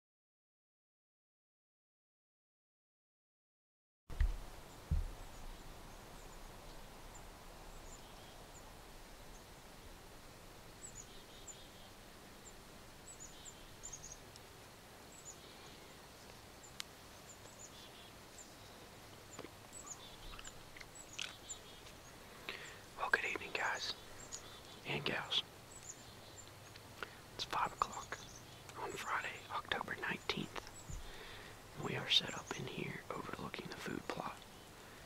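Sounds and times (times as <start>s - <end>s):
woodland ambience: 4.1s - 35.0s
knock: 4.2s - 5.1s.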